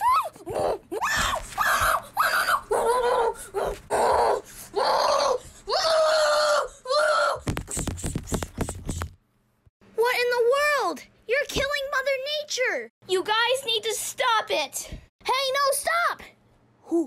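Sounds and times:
person screeching and wailing: 0:00.0 - 0:07.6
toys knocking against microphone: 0:07.4 - 0:09.2.

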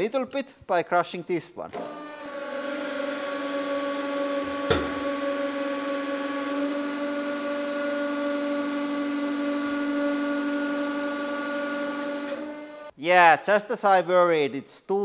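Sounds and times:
hydraulic pump humming: 0:01.7 - 0:12.9.

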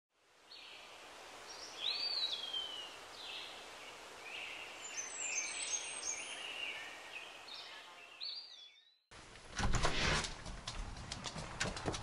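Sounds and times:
outdoor hiss: 0:00.2 - 0:07.8
birds singing: 0:00.5 - 0:09.1.

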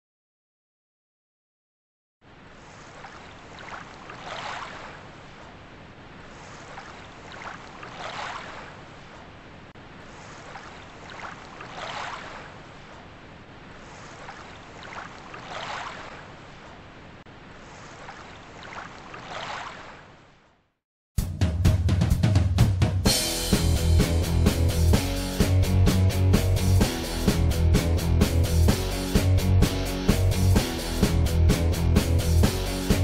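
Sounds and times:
waves washing ashore: 0:02.2 - 0:20.4.

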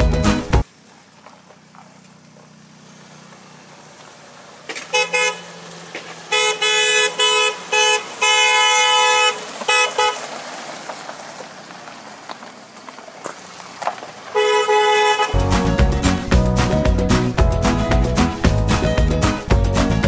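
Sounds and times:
car horn honking: 0:04.7 - 0:05.6, 0:06.2 - 0:10.3, 0:14.3 - 0:15.6.

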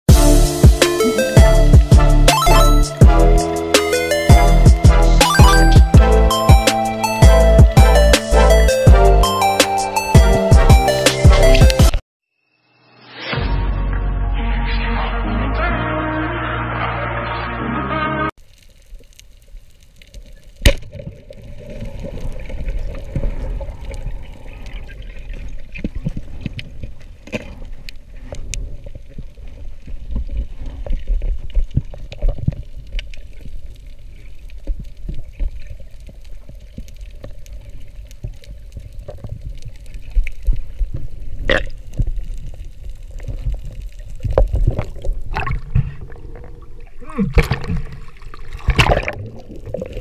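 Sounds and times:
underwater rumble of moving water: 0:18.5 - 0:50.0.

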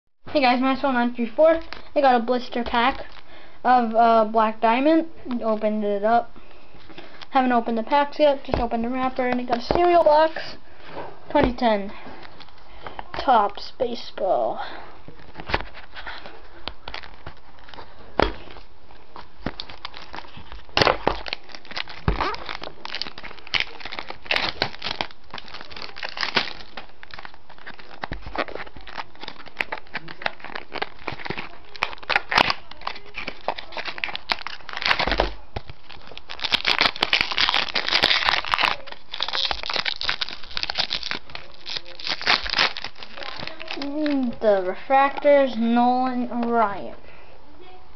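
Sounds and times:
packaging crinkling and tearing: 0:15.1 - 0:45.6.

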